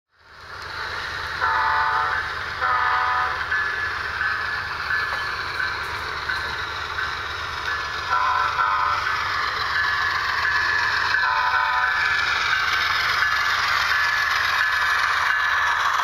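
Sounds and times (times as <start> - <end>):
diesel engine rumble: 0.1 - 16.0
model locomotive horn blasts: 1.4 - 3.5, 8.1 - 9.1, 11.2 - 12.0.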